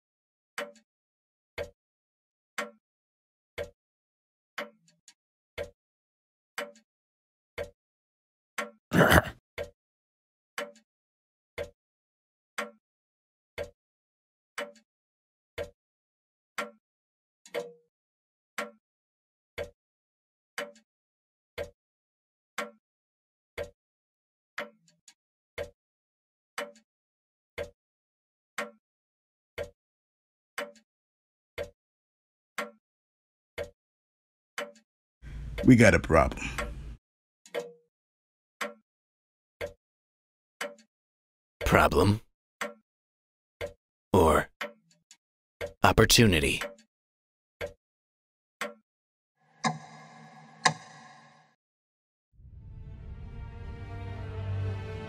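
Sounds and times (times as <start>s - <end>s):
pendulum clock ticking: 5.6s - 5.8s, 13.6s - 13.8s, 14.6s - 14.8s, 17.5s - 17.7s, 41.6s - 42.8s, 49.6s - 51.6s.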